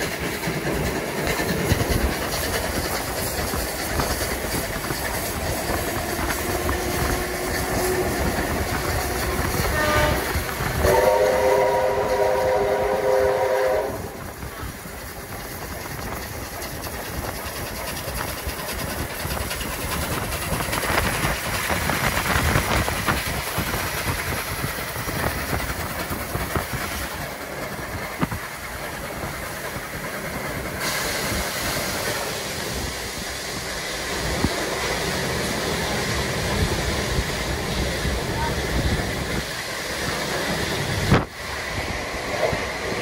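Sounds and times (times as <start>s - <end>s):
train rumbling on rails: 0.0s - 43.0s.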